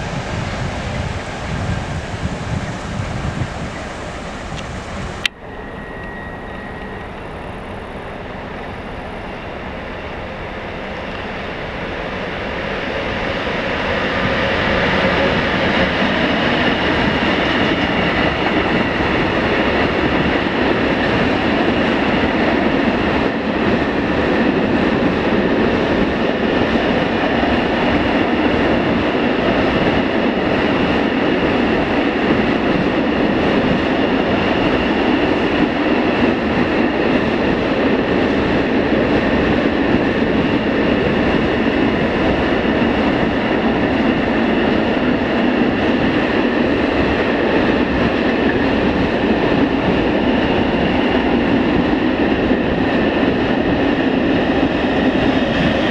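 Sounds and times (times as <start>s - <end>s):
freight train rolling past: 0.0s - 55.9s.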